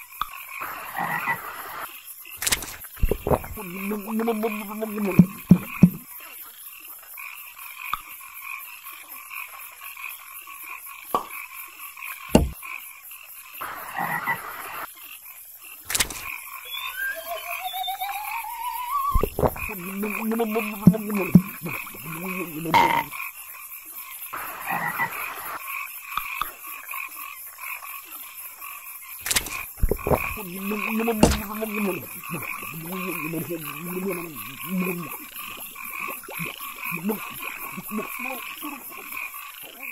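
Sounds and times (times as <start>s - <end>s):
frogs croaking: 0.0s - 39.9s
sharp knocks or pops: 2.4s - 6.0s, 12.3s - 12.6s, 19.1s - 22.0s, 29.3s - 30.4s, 31.2s - 31.7s
short vocal noises: 3.0s - 6.0s, 16.7s - 23.1s, 29.8s - 39.0s
rising whistle-like glide: 16.6s - 19.3s.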